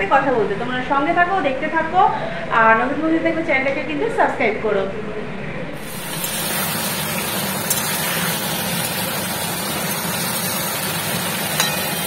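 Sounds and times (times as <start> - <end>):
curry sizzling in a wok: 5.8 - 12.0.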